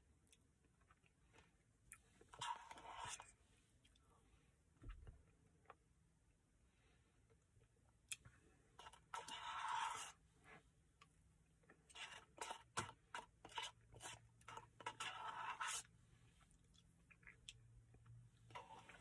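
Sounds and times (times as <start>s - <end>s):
plastic spoon scraping paper cup: 2.3s - 3.4s, 8.8s - 10.2s, 11.9s - 15.9s, 18.5s - 19.0s
close chewing and mouth sounds: 16.4s - 19.0s.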